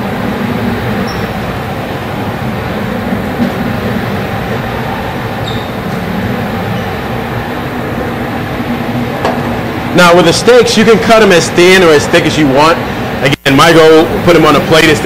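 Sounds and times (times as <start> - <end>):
kitchen ventilation humming: 0.0 - 15.0.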